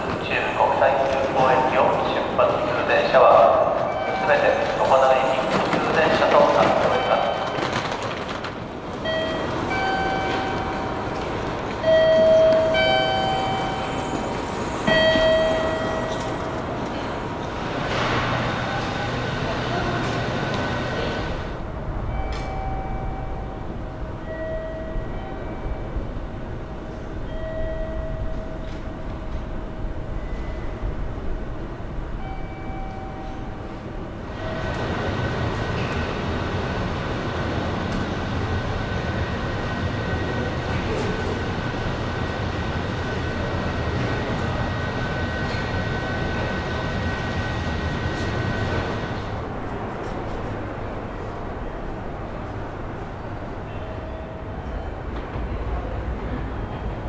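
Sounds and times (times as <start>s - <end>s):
electric train rumbling on rails: 0.0s - 57.0s.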